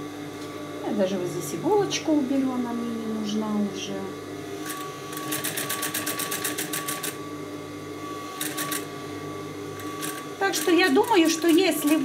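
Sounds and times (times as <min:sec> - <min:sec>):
motor hum: 0:00.0 - 0:12.0
sewing machine stitching: 0:04.6 - 0:07.2, 0:08.4 - 0:08.9, 0:09.8 - 0:12.0.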